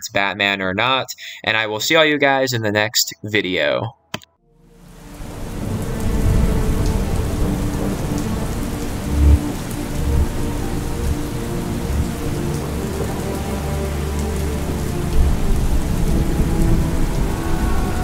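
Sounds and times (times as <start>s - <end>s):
heavy rain: 4.6s - 18.0s
rolling thunder: 5.2s - 18.0s.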